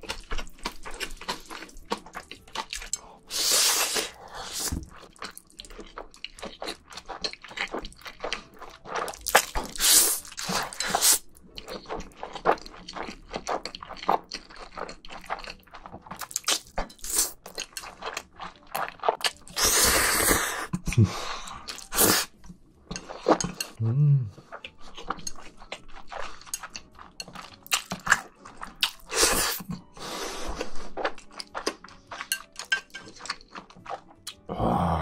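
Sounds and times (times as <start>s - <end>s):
slurping and wet chewing: 0.0s - 34.5s.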